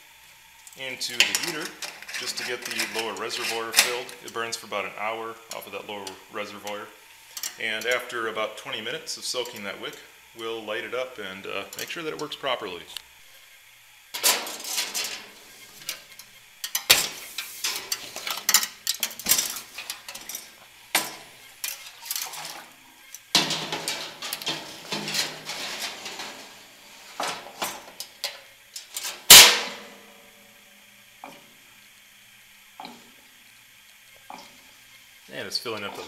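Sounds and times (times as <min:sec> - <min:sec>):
metal scraping: 0:01.1 - 0:04.2, 0:14.2 - 0:15.9, 0:23.4 - 0:27.8.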